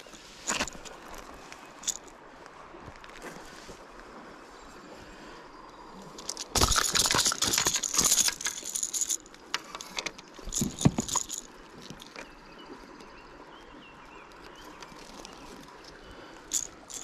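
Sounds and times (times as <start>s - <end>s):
fishing lure and hooks rattling: 0.5s - 1.2s, 1.8s - 2.1s, 6.1s - 12.2s, 16.4s - 17.0s.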